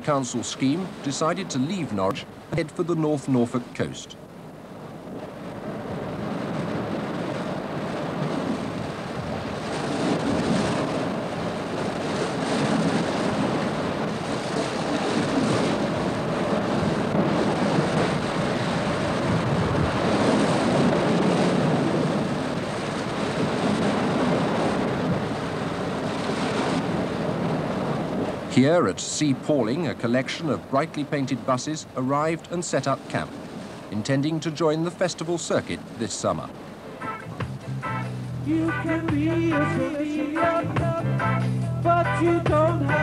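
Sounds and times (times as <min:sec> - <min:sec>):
surf washing onto beach: 0:00.0 - 0:40.7
wind on microphone: 0:03.8 - 0:34.4, 0:35.6 - 0:43.0.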